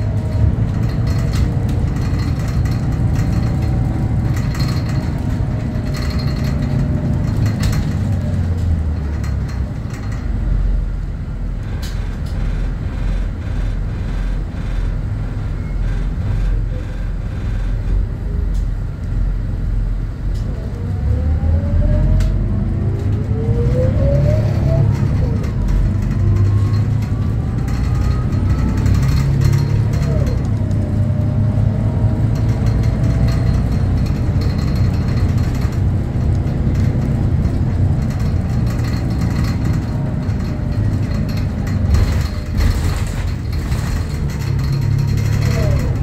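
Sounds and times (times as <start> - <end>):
rattling clicks: 0.0 - 10.4
bus engine and road rumble: 0.0 - 46.0
engine whine climbing in pitch: 17.3 - 46.0.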